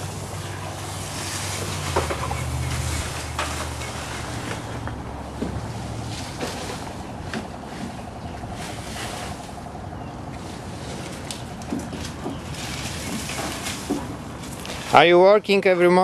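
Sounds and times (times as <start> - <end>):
faint steady hum: 0.0 - 11.6
wind rumbling on microphone: 0.0 - 14.8.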